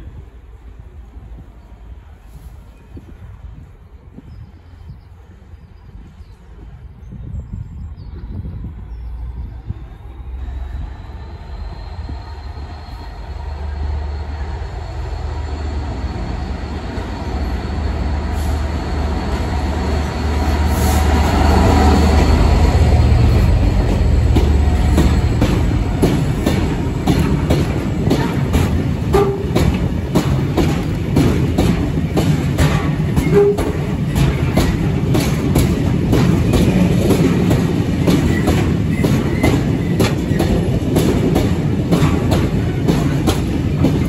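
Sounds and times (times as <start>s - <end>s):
diesel locomotive passing: 8.1s - 44.0s
train wheels clicking over rail joints: 10.2s - 44.0s.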